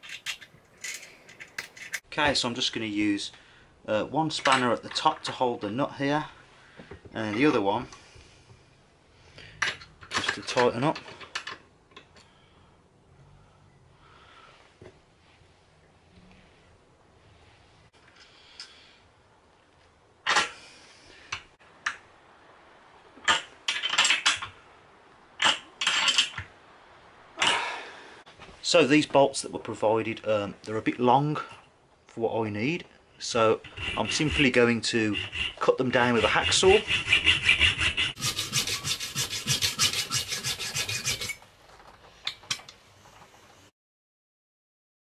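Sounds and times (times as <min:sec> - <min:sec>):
spanners clinking on metal: 0:00.0 - 0:02.0
hacksaw cutting metal: 0:33.6 - 0:41.4.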